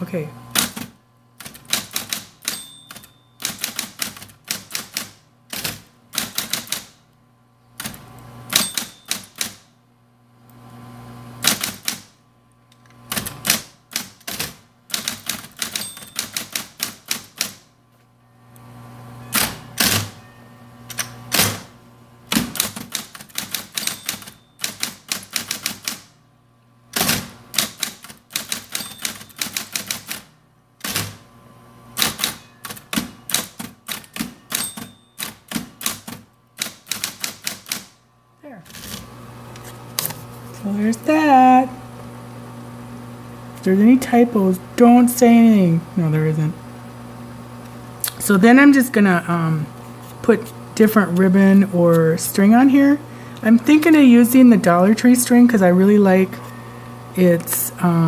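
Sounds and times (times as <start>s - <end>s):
typewriter motor hum: 0.4s - 7.0s, 7.8s - 9.7s, 10.4s - 17.7s, 19.3s - 20.2s, 20.9s - 26.2s, 26.9s - 31.3s, 31.9s - 38.0s, 38.6s - 40.8s
typewriter keystrikes: 0.6s - 7.0s, 7.8s - 9.7s, 11.4s - 12.1s, 13.1s - 17.6s, 19.3s - 20.2s, 22.3s - 26.1s, 27.0s - 31.2s, 32.0s - 38.0s.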